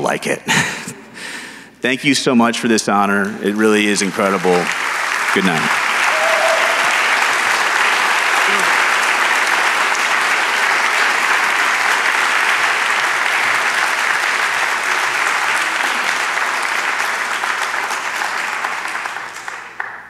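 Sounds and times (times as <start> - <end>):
audience applauding: 3.5 - 20.0.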